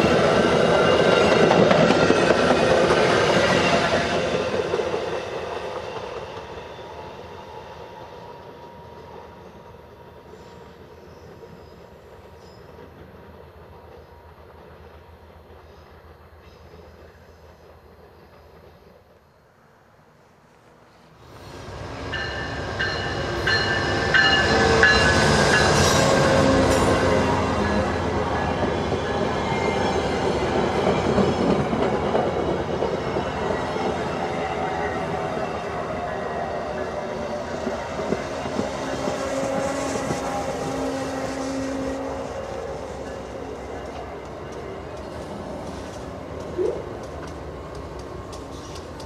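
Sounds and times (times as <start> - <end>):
train passing on rails: 0.0 - 49.0
locomotive bell ringing: 22.1 - 25.9.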